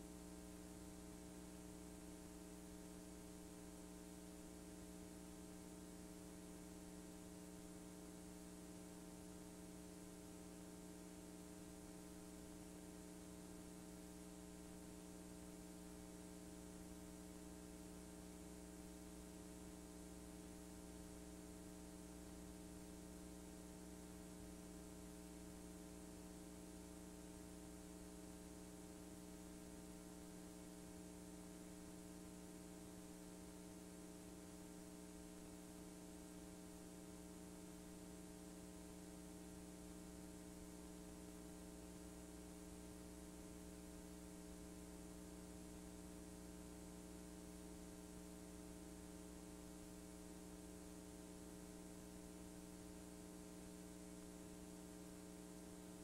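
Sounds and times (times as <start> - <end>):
faint electrical hum: 0.0 - 56.0
tape hiss: 0.0 - 56.0.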